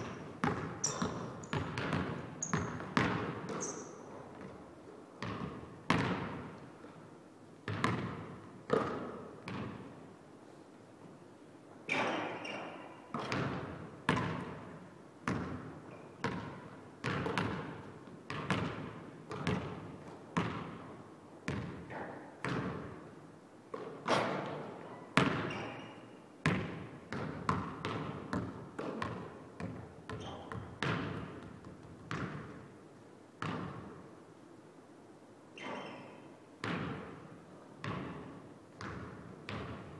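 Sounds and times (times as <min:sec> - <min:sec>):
basketball bouncing on wooden floor: 0:00.0 - 0:04.6, 0:05.2 - 0:06.4, 0:07.7 - 0:09.8, 0:13.1 - 0:14.6, 0:16.2 - 0:19.8, 0:20.4 - 0:20.9, 0:21.5 - 0:22.9, 0:25.2 - 0:25.9, 0:26.5 - 0:32.6, 0:33.4 - 0:33.8, 0:36.6 - 0:37.1, 0:37.8 - 0:39.8.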